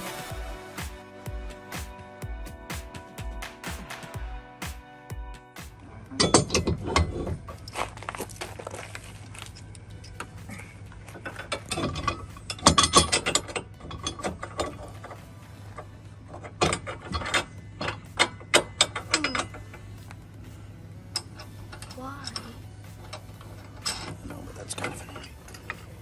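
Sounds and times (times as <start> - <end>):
metal scrapes clicks and knocks: 6.1 - 7.6, 11.0 - 20.1, 21.1 - 26.0.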